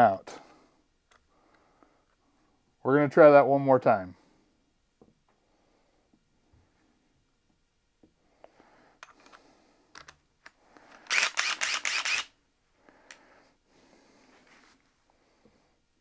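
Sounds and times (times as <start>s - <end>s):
drill bit rattling in chuck: 11.0s - 12.3s.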